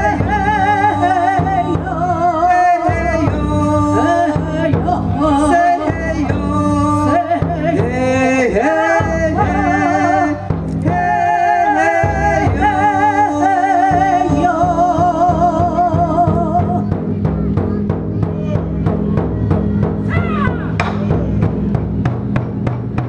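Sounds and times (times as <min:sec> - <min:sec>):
person singing with vibrato: 0:00.0 - 0:17.0
taiko drum strikes: 0:00.0 - 0:23.0.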